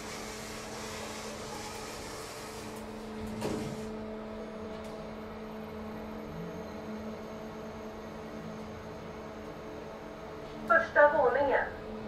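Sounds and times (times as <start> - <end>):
elevator doors closing: 0.0 - 5.5
elevator electrical hum: 0.0 - 12.0.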